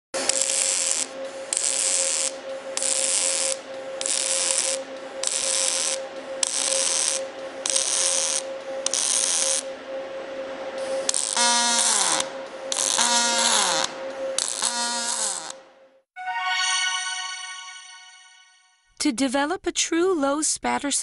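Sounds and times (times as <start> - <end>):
steady high hum: 0.2 - 14.6.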